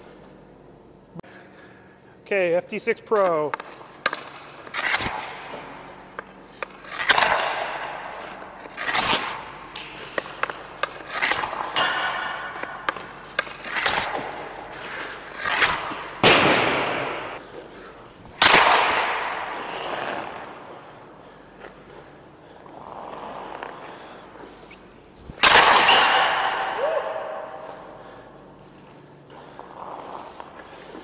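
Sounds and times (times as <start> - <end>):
hockey stick hitting puck on ice: 3.2 - 21.8, 25.4 - 28.1.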